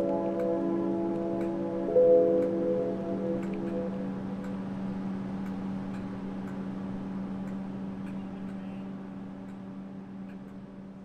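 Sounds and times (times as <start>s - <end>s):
electric train hum: 0.0s - 11.0s
faint regular ticking: 2.4s - 10.7s.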